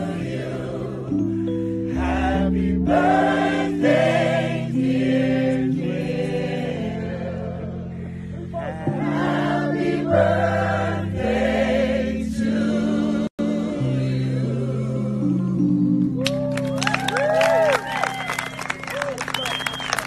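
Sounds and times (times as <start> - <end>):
gospel choir singing in harmony: 0.0 - 16.0
held chords: 0.0 - 16.2.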